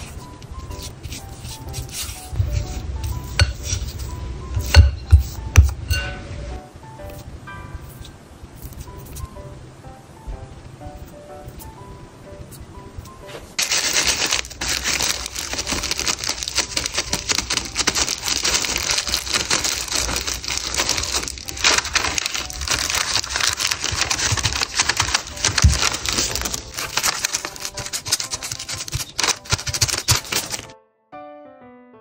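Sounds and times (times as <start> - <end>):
plastic gloves and paper crinkling: 0.0 - 5.4, 13.6 - 30.7.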